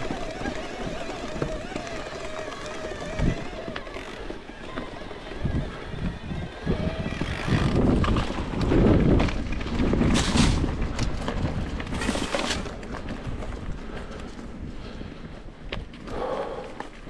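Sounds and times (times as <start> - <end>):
bike rolling rumble: 0.0 - 17.0
wind rushing over microphone: 5.0 - 15.0.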